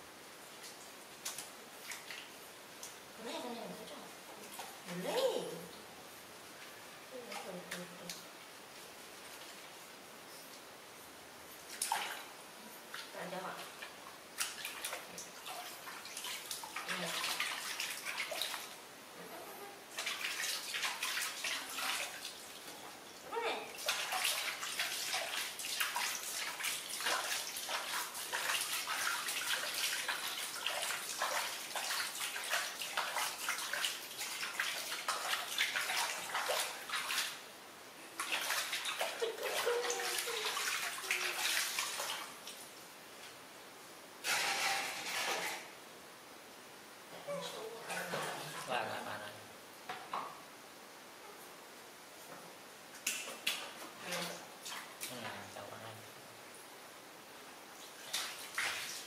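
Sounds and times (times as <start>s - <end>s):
water splashing in plastic basin: 11.7s - 12.3s, 12.9s - 18.8s, 19.9s - 22.7s, 23.7s - 37.4s, 38.2s - 42.6s, 44.2s - 45.7s, 53.0s - 55.4s, 57.8s - 59.0s.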